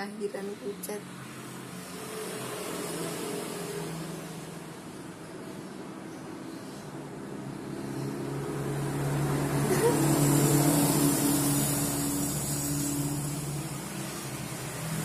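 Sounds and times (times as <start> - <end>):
vehicle engine passing: 6.4 - 15.0.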